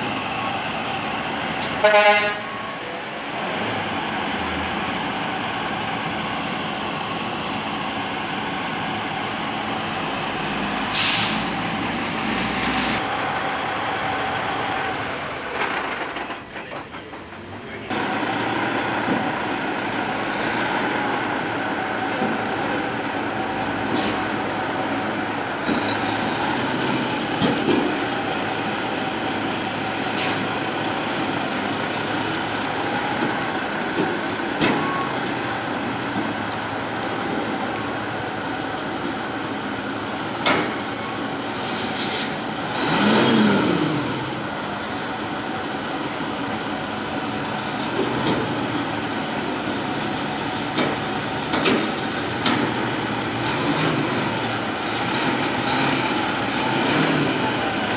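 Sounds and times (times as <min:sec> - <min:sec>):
truck diesel engine running: 0:00.0 - 0:57.9.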